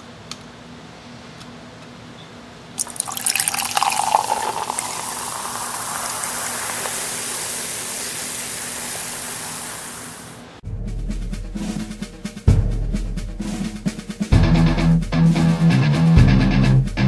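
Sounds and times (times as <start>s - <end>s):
drink pouring and glugging: 2.8s - 10.3s
fizzing hiss: 2.8s - 10.5s.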